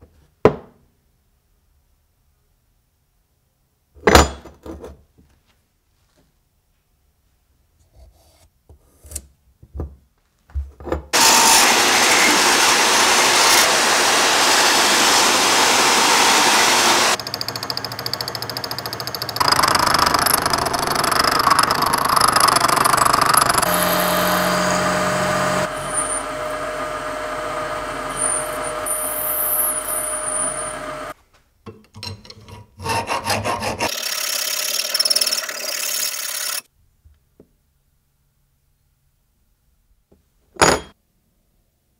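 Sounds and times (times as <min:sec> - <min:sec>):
milling machine cutting brass: 0:11.2 - 0:31.1
metal cutting noise: 0:11.2 - 0:31.2, 0:32.8 - 0:36.7
hand file rasping metal: 0:32.4 - 0:36.5.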